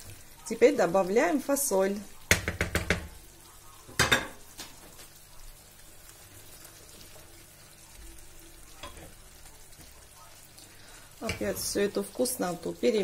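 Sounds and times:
food sizzling in a frying pan: 0.0s - 13.0s
kitchen clatter: 2.3s - 3.2s, 3.9s - 5.1s, 8.8s - 9.2s, 11.2s - 11.9s.

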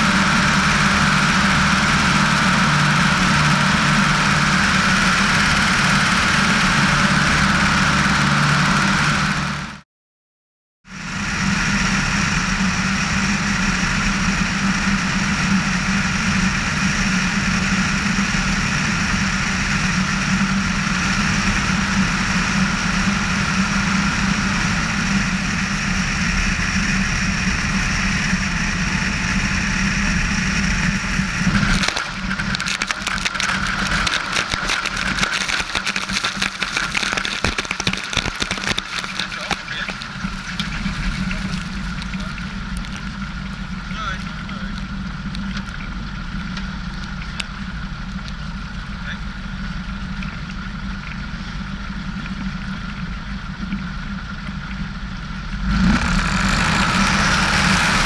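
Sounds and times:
plane engine and propeller droning: 0.0s - 9.8s, 10.9s - 58.0s
rushing water and spray: 31.7s - 42.4s.

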